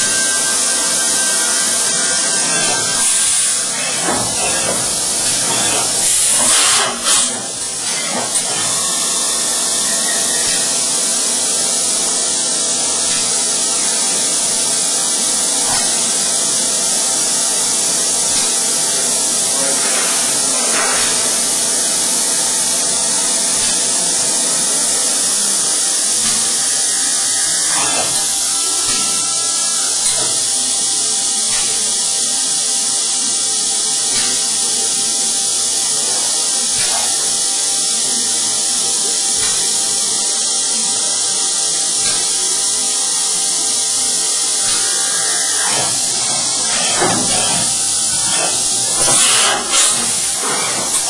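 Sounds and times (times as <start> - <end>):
loud hissing spray: 0.0 - 51.0
milling machine drilling: 0.0 - 51.0.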